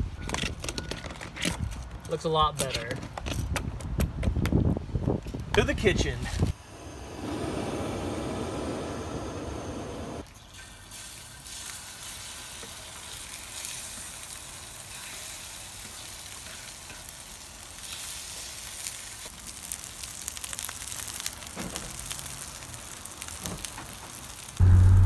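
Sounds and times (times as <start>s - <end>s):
food sizzling in a frying pan: 10.6s - 25.0s.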